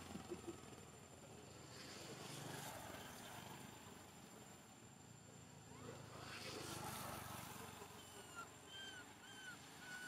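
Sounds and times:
high chirping animal calls: 7.8s - 10.0s.

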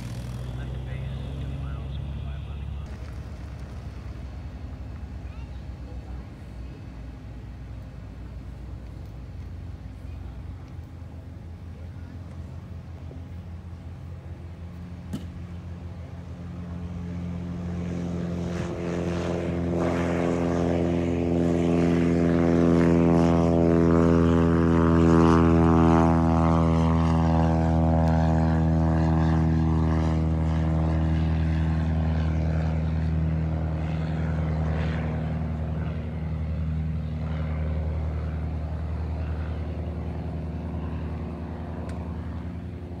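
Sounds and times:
propeller plane engine drone: 0.0s - 43.0s.

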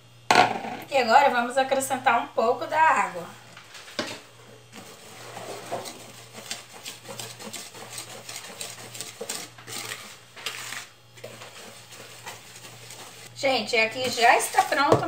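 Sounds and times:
wire whisk beating batter in bowl: 4.1s - 15.0s.

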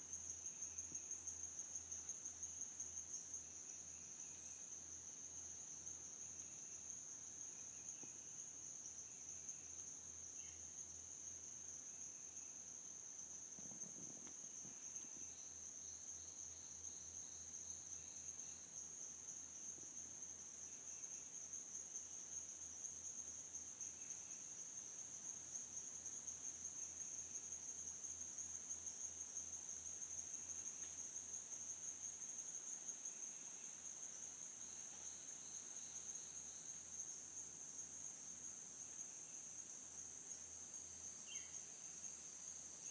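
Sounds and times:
high-pitched insect trill: 0.0s - 42.9s
insect chirps: 0.0s - 42.9s.

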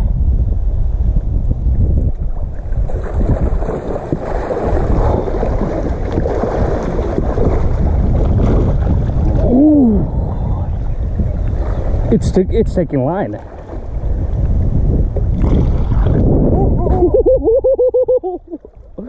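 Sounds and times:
wind buffeting microphone: 0.0s - 19.0s
fish thrashing in water: 2.4s - 10.3s, 15.2s - 16.4s.

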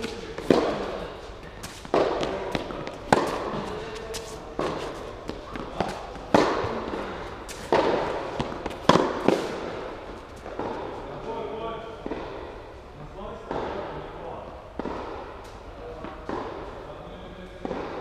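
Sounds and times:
rackets striking tennis ball: 0.0s - 11.1s, 12.0s - 12.6s, 13.5s - 14.1s, 14.7s - 16.8s, 17.6s - 18.0s
ball bouncing on court: 1.6s - 9.8s.

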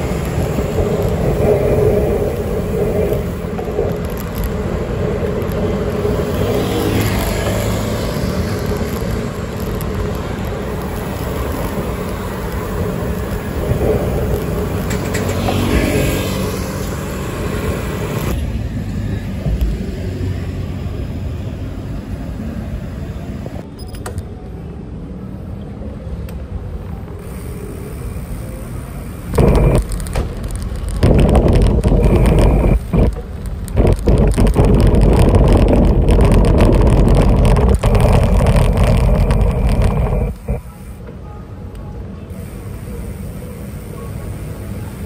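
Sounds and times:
wind rushing on microphone: 0.0s - 18.4s, 29.3s - 40.7s
vehicle passing: 0.0s - 21.2s
road traffic: 0.0s - 45.0s.

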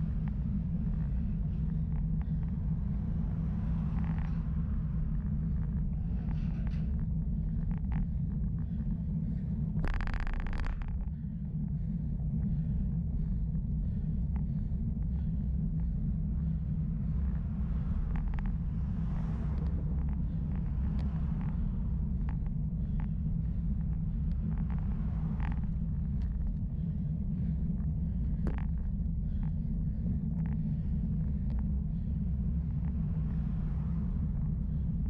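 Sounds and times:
road and wind rumble: 0.0s - 35.0s
faint ticks: 9.8s - 11.2s, 18.0s - 26.9s.

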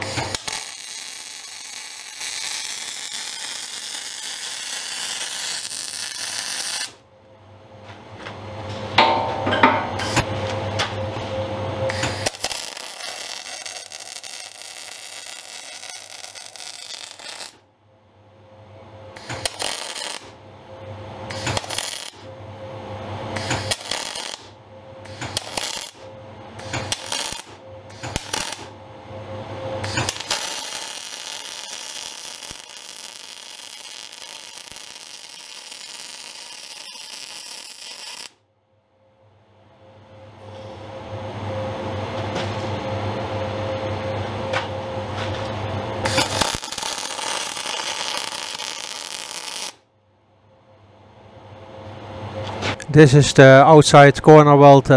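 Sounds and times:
welder arc crackling: 0.0s - 7.0s, 11.9s - 17.6s, 19.1s - 20.4s, 21.3s - 22.3s, 23.3s - 28.7s, 29.8s - 38.4s, 46.0s - 49.8s.

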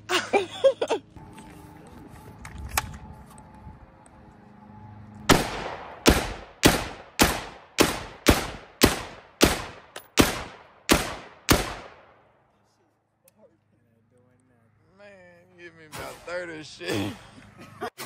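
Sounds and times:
gunshots with echo: 5.3s - 12.2s.

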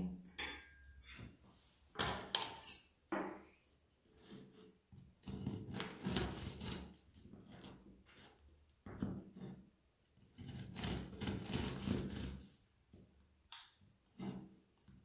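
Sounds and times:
knife sawing through crust: 5.2s - 8.3s, 10.4s - 12.5s.

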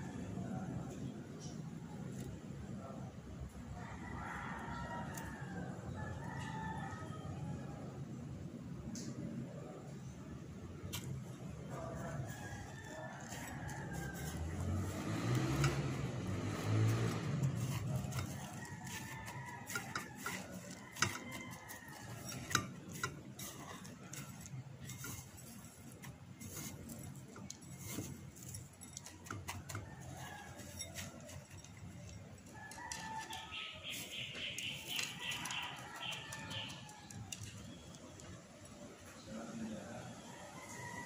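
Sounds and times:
breadcrumbs rustling and crunching: 11.8s - 38.4s.

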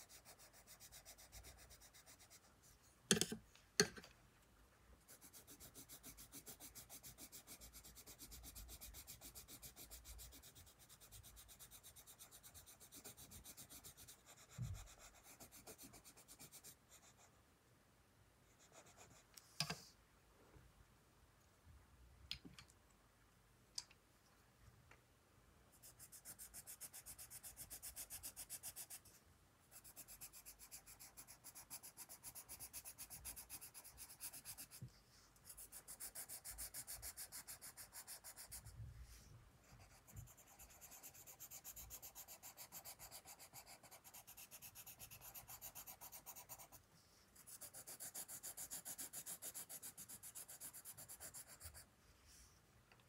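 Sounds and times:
pencil scratching on paper: 0.0s - 3.9s, 5.1s - 17.3s, 18.5s - 19.8s, 25.7s - 38.8s, 39.6s - 46.8s, 47.4s - 51.9s.

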